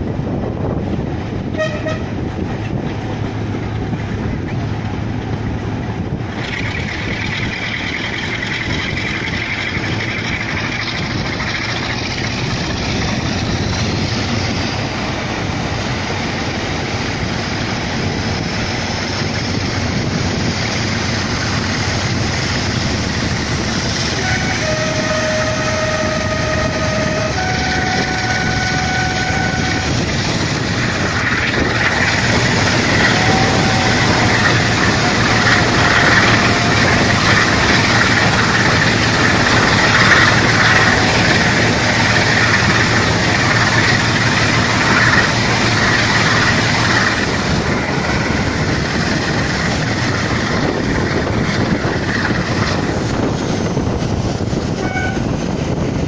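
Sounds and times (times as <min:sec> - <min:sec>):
diesel locomotive engine working hard: 0:00.0 - 0:56.0
train horn: 0:01.5 - 0:02.3, 0:24.1 - 0:45.1, 0:54.7 - 0:55.5.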